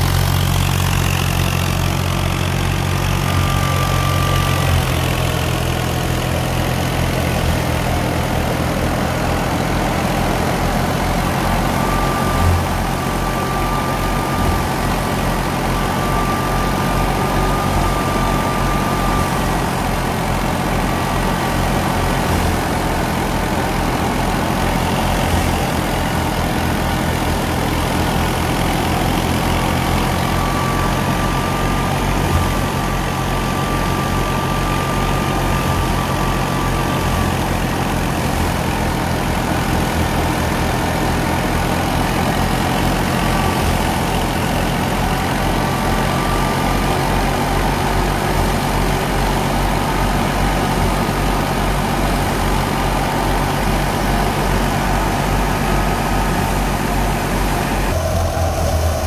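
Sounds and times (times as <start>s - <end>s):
thresher mechanical drone: 0.0s - 59.0s
tractor diesel engine running: 0.0s - 59.0s
faint high whine: 1.7s - 39.3s, 54.2s - 59.0s.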